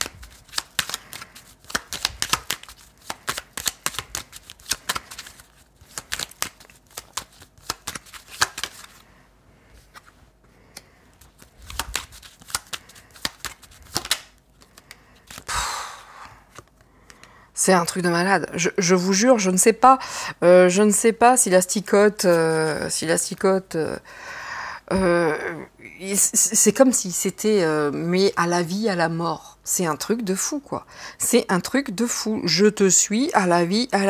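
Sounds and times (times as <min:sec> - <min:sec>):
cards being shuffled: 0:00.0 - 0:09.1, 0:09.8 - 0:15.5.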